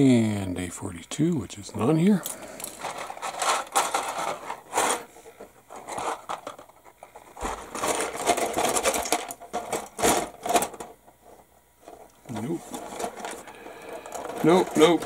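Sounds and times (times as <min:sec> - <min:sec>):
plastic sprues clattering: 0:02.2 - 0:15.0.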